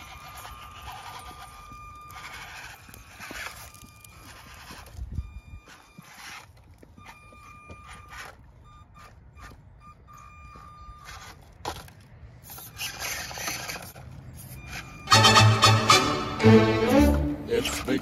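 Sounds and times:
small electric motor whining: 0:00.0 - 0:09.6
tires scraping on stone: 0:00.0 - 0:18.0.

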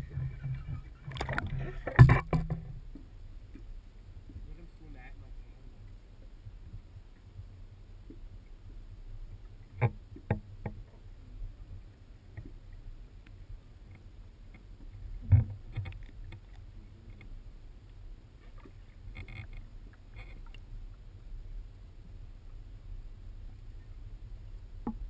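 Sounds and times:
faint clicks: 0:12.3 - 0:21.0.

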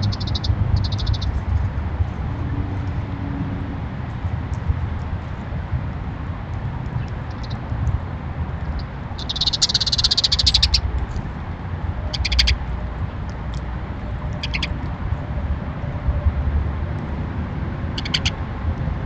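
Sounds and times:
quick high chirps: 0:00.0 - 0:01.3, 0:09.2 - 0:10.8
songbird high trill: 0:00.0 - 0:01.4, 0:08.8 - 0:10.9, 0:12.1 - 0:12.6
steady low rumble: 0:00.0 - 0:19.0.

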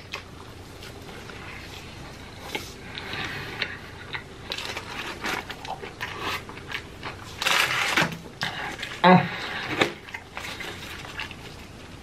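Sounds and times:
chewing with crunches: 0:00.0 - 0:12.0.

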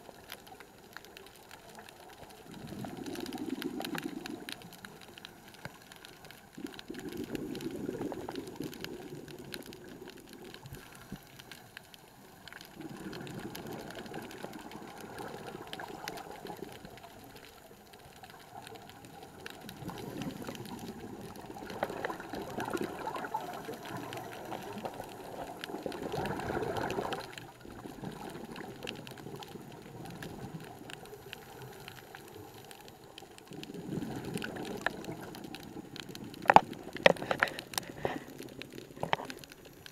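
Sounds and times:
bubbles gurgling underwater: 0:00.0 - 0:11.5, 0:12.4 - 0:39.9
diver breathing through regulator: 0:37.2 - 0:39.2.

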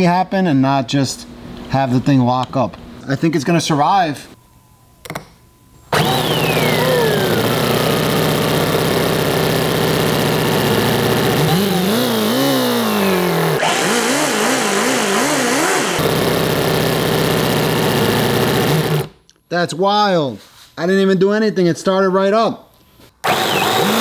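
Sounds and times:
model engine running: 0:05.9 - 0:19.1, 0:23.2 - 0:24.0.

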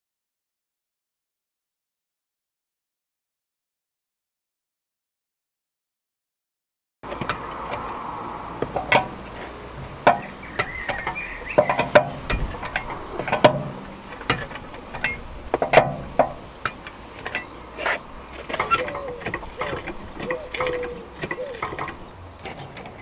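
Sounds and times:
socket wrench clinking on wheel bolts: 0:07.1 - 0:07.9, 0:09.8 - 0:23.0.

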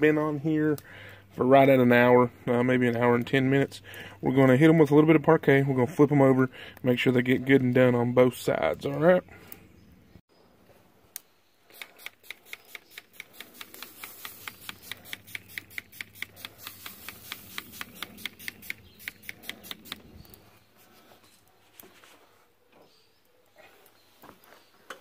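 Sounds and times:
pump spray bottle clicking: 0:11.7 - 0:20.1.

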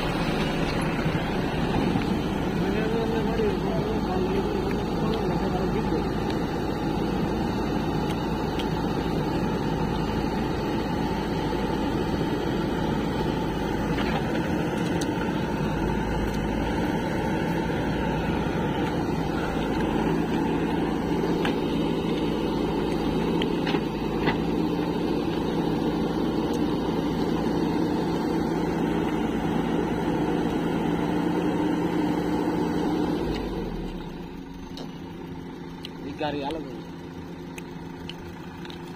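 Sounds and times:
backhoe loader diesel engine: 0:00.0 - 0:38.9
tractor diesel engine: 0:00.0 - 0:38.9.

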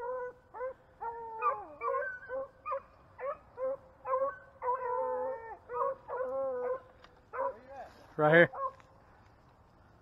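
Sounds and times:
dog howling: 0:00.0 - 0:07.6.

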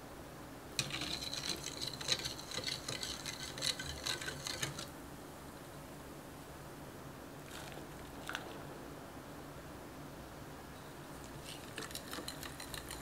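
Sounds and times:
wire whisk clinking in glass bowl: 0:00.8 - 0:04.9, 0:11.6 - 0:13.0.

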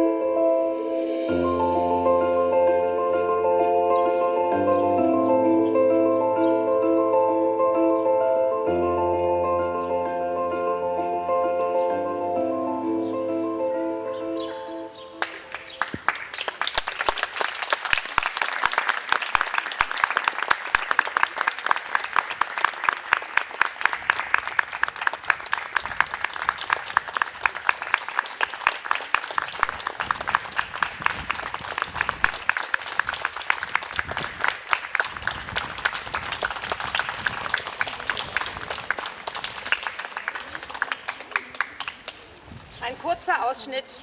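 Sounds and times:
audience applauding: 0:15.2 - 0:42.4.

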